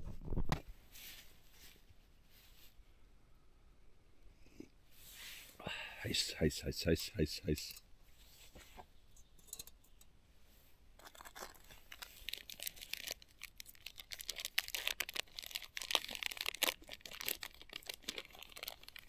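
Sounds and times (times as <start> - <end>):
plastic wrapper tearing and crinkling: 11.0 - 19.0.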